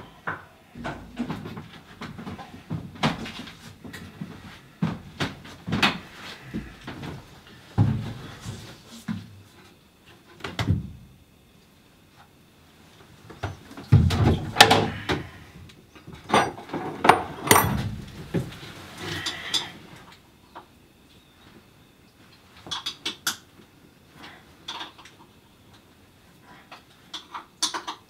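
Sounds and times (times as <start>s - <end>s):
knocks and thumps in wooden cabin: 0.2s - 9.3s, 10.4s - 11.1s, 13.3s - 15.4s, 16.0s - 18.7s.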